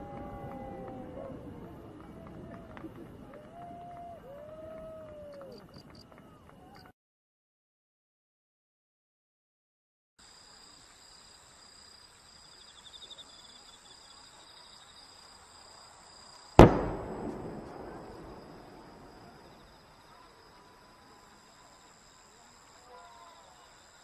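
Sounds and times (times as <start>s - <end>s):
firework boom with echoing rumble: 16.6s - 19.7s.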